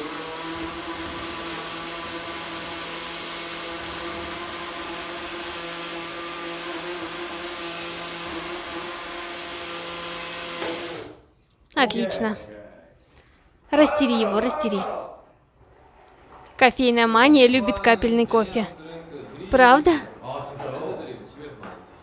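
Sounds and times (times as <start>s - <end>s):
blender running: 0.0s - 11.3s.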